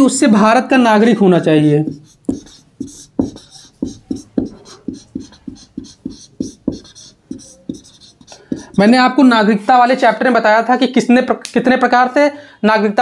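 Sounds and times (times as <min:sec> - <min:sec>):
marker squeaking on whiteboard: 0:01.8 - 0:09.2.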